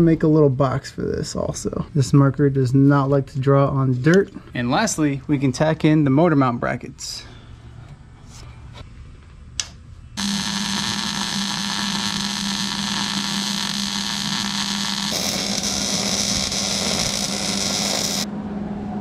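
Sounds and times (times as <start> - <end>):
constant hum: 0.0 - 19.0
welder hissing: 10.2 - 18.3.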